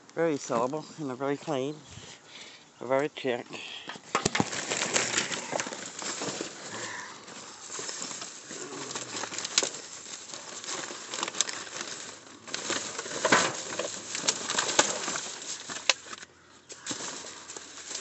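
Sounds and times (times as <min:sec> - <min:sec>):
plastic bags rustling and crinkling: 0:00.1 - 0:02.2, 0:03.2 - 0:18.0.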